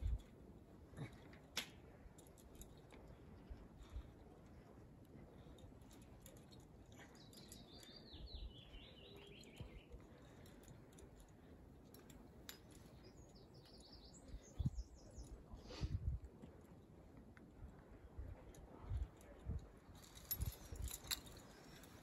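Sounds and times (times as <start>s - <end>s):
songbird singing: 6.3s - 10.7s, 12.0s - 15.6s.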